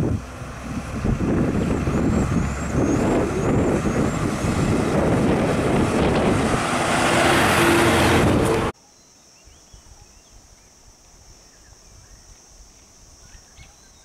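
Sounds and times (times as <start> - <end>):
large vehicle engine rumbling: 0.0 - 8.8
bird chirping: 13.2 - 14.0.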